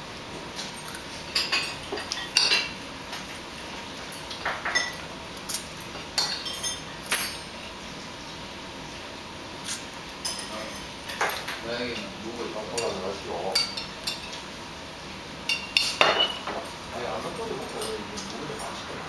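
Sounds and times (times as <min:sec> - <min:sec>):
utensils clinking on ceramic plates: 0:00.7 - 0:03.3, 0:04.1 - 0:07.5, 0:10.2 - 0:14.4, 0:15.5 - 0:18.8.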